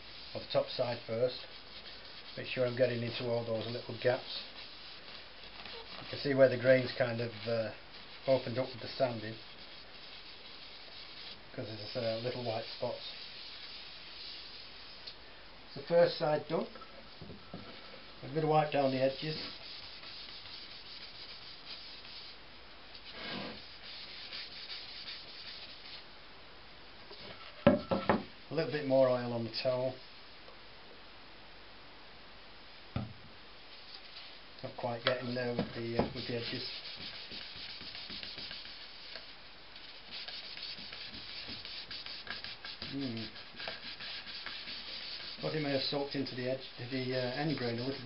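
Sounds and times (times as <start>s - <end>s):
paper towel wiping a board: 0.0s - 15.0s, 18.3s - 22.4s, 23.0s - 26.0s, 33.7s - 48.0s.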